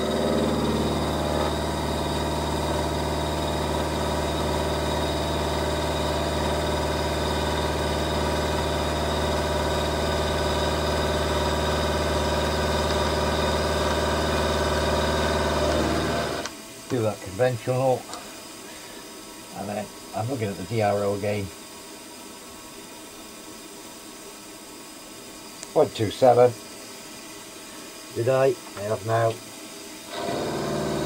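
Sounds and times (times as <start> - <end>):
end mill cutting metal: 0.0 - 16.5, 30.1 - 31.0
milling machine motor hum: 0.0 - 16.9, 28.0 - 31.0.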